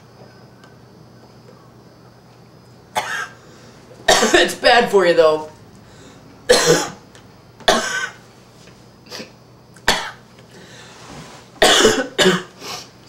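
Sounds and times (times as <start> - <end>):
man coughing: 3.0 - 3.4, 4.1 - 4.6, 6.5 - 7.0, 7.7 - 8.2, 9.9 - 10.2, 11.6 - 12.5.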